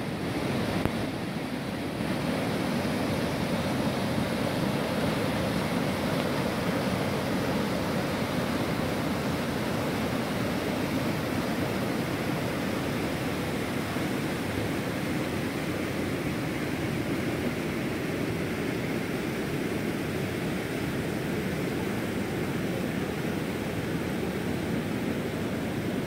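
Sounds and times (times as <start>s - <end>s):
stream rushing over rocks: 0.0s - 26.0s.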